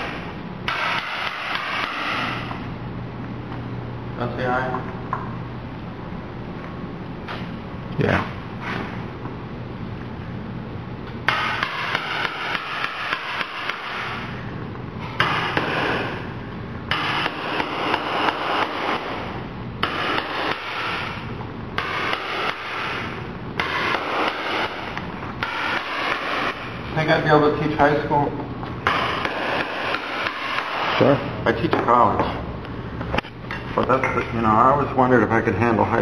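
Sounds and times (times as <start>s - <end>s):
hammer strikes: 0.0s - 2.6s, 11.2s - 14.4s, 15.1s - 16.3s, 16.9s - 26.8s, 28.8s - 32.3s.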